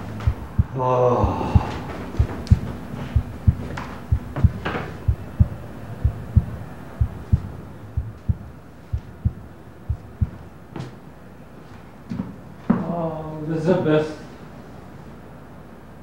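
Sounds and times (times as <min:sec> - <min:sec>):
slow heartbeat thuds: 0:00.0 - 0:10.5.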